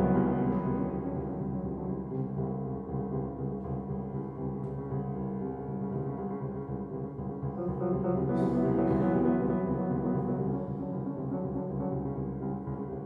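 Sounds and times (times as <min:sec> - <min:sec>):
loud piano chord: 0:00.0 - 0:02.8, 0:07.9 - 0:12.2
grand piano playing: 0:00.0 - 0:06.1, 0:07.4 - 0:13.0.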